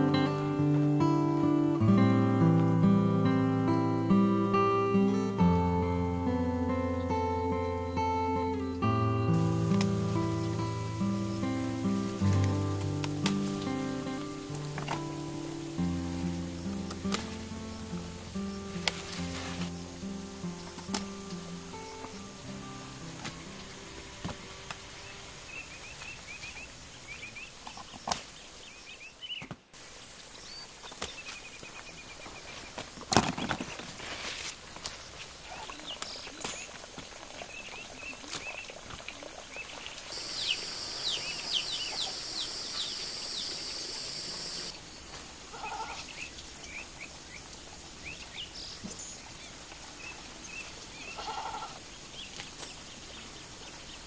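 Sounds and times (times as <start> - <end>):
small birds chirping: 6.6 - 33.9, 34.8 - 54.0
steady high buzz: 8.8 - 25.8, 40.1 - 44.8
short animal calls: 45.5 - 46.1, 51.1 - 51.8.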